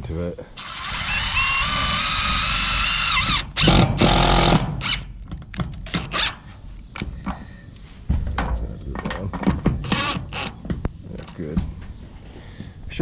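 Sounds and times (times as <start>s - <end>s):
cordless drill driving screws: 0.6s - 5.1s, 9.8s - 10.6s.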